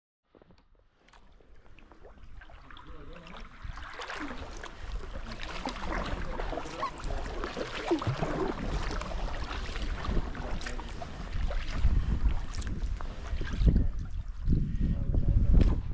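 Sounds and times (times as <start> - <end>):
paddle blades dipping in water: 0.4 - 14.6
water trickling and splashing: 0.9 - 14.9.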